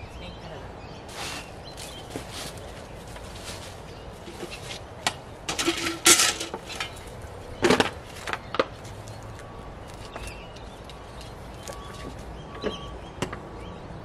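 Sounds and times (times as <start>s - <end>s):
trash clinking and rattling: 3.1s - 12.7s.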